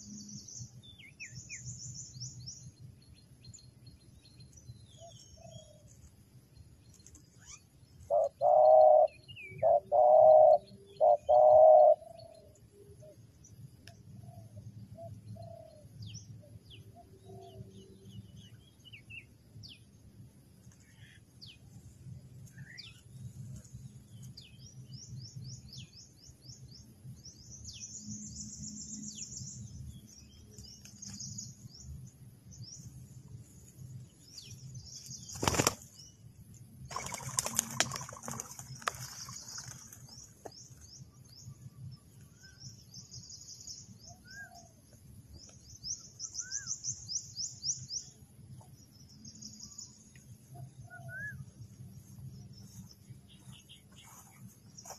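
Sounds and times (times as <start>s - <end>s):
short bird chirps: 7.4s - 7.7s
dove wings flapping: 35.3s - 35.9s, 36.9s - 40.1s.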